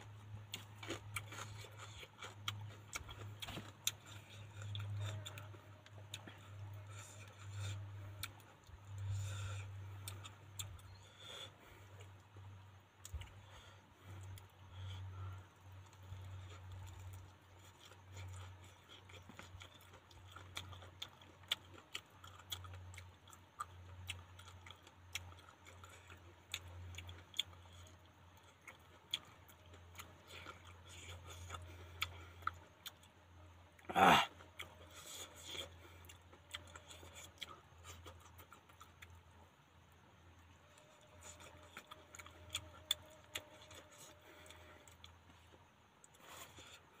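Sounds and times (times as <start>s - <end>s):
steady low hum: 0.0s - 47.0s
person chewing wetly: 0.1s - 47.0s.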